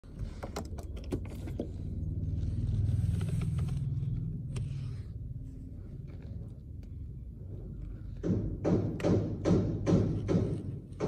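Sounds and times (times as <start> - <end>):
vehicle engine passing by: 1.7 - 6.1.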